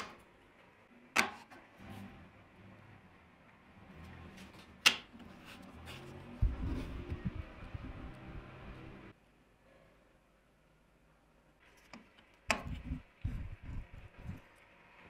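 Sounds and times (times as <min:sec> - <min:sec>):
soft low thumps: 0:06.4 - 0:08.1.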